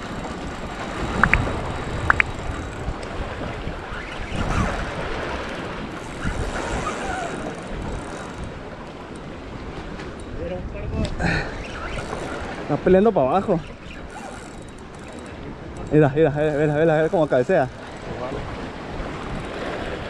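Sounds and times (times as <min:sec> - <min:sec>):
sea surf: 0:00.0 - 0:20.0
wind buffeting microphone: 0:00.0 - 0:20.0
brief high squeaks: 0:11.4 - 0:12.6.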